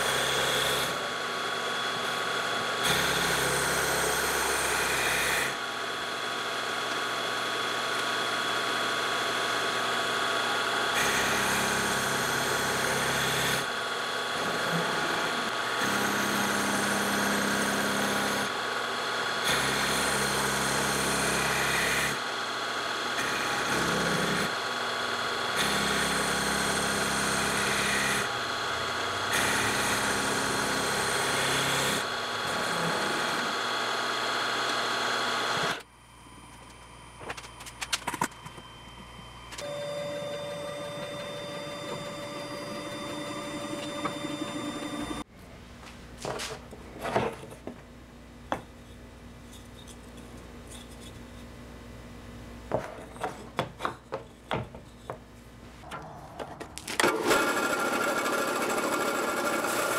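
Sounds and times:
end mill cutting wood: 0.0 - 35.9, 39.6 - 45.3, 55.9 - 59.9
milling machine motor whine: 0.0 - 45.3, 55.9 - 59.9.

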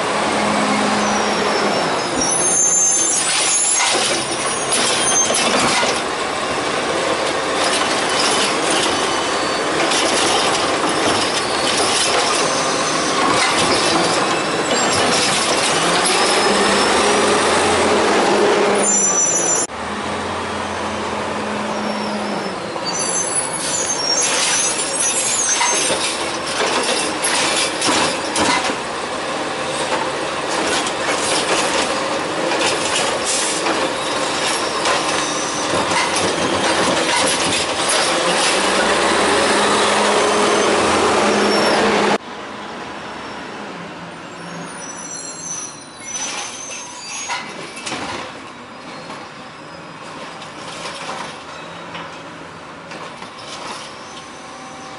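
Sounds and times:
scattered clicks and knocks: 3.2 - 6.1, 9.8 - 12.5, 25.6 - 28.8, 29.9 - 38.6
mechanical arm clattering and knocking: 25.6 - 28.8, 29.9 - 38.7.

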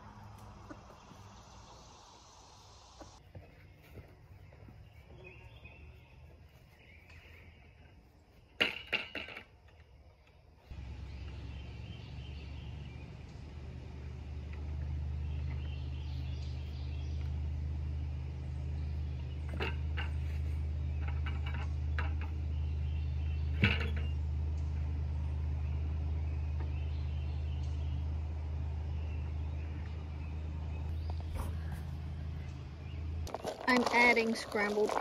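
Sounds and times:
low machine hum: 10.6 - 35.0.

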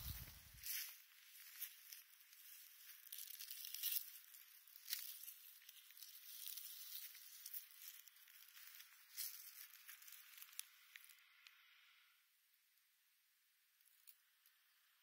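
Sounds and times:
beaver rustling in leafy weeds: 0.0 - 11.2.

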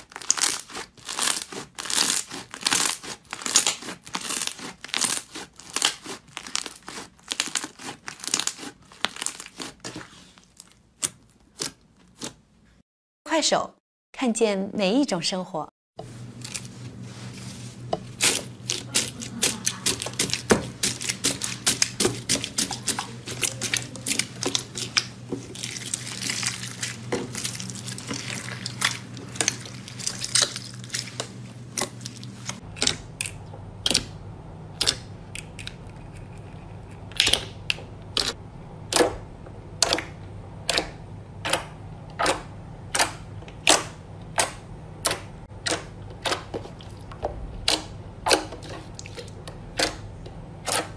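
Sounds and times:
slime crunching and crackling: 0.0 - 12.4, 18.1 - 34.1.

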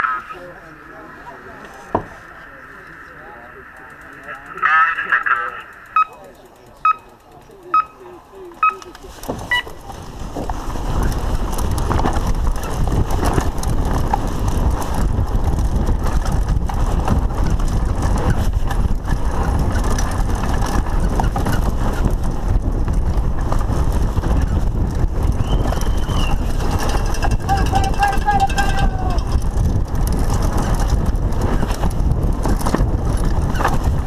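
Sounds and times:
mountain bike rattling and knocking: 3.8 - 34.0
timer beep: 5.6 - 6.2, 6.8 - 7.1, 7.7 - 8.0, 8.6 - 8.9
wind on microphone: 8.6 - 34.0.

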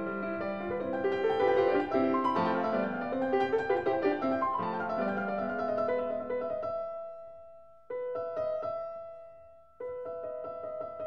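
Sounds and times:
piano-like keyboard chords: 0.0 - 7.2.

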